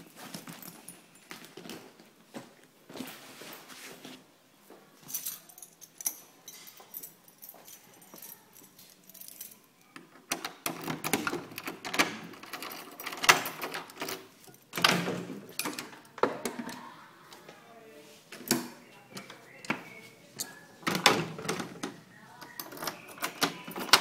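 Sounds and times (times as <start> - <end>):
keys jangling: 5.0 - 9.7, 10.7 - 14.9
key rattling in door lock: 10.2 - 16.0, 22.6 - 24.0.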